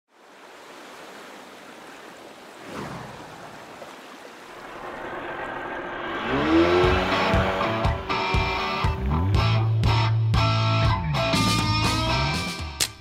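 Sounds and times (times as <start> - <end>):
rushing water: 0.1 - 9.2
whoosh: 4.5 - 8.1
guitar music with sliding note: 6.2 - 12.7.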